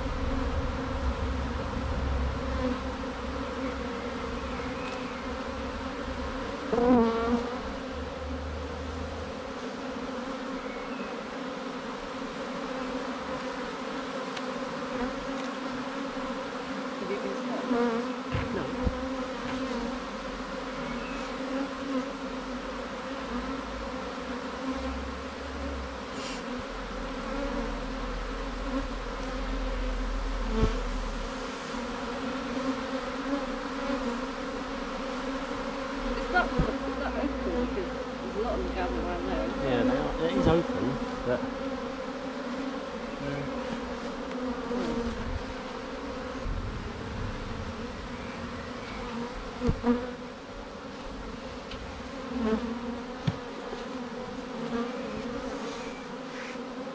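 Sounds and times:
loud buzz bending in pitch: 0.0 - 11.3, 42.9 - 54.6
bee swarm humming: 0.0 - 56.9.

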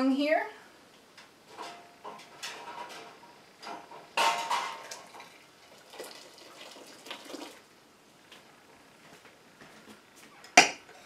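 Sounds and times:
water splashing and dripping: 4.8 - 7.6.

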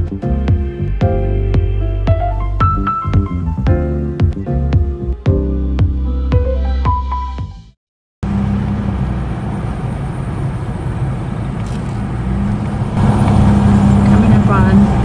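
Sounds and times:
background music: 0.0 - 7.7
car road and engine noise: 8.2 - 15.0.

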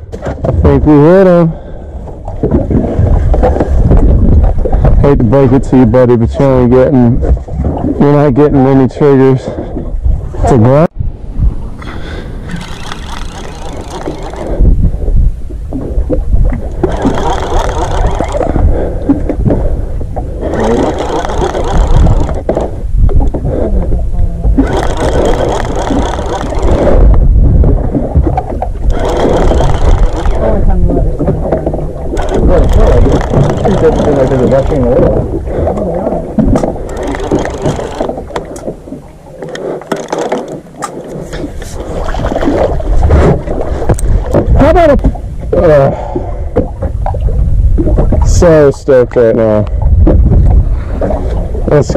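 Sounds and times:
water sloshing against boat hull: 0.0 - 51.9
wind rumbling on microphone: 0.0 - 51.9
fish splashing: 11.9 - 15.0, 15.8 - 22.8, 24.5 - 27.2, 28.2 - 44.5.

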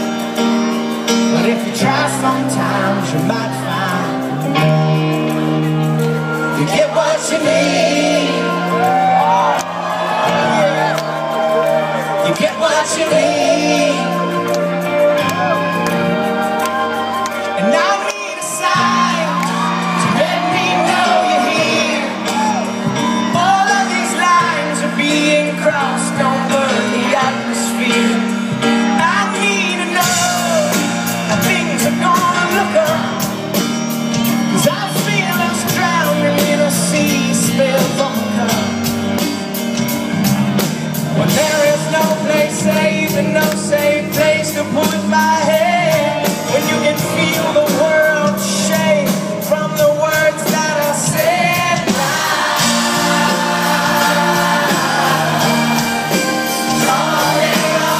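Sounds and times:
drums and cymbals: 0.0 - 57.9
live rock band playing: 0.0 - 57.9
lead vocalist singing: 1.1 - 39.1, 40.7 - 57.9.

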